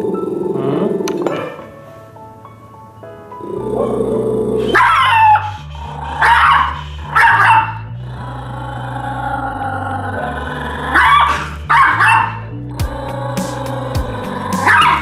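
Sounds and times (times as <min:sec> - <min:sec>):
dog snarling barks: 0:06.2 - 0:07.8, 0:10.2 - 0:15.0.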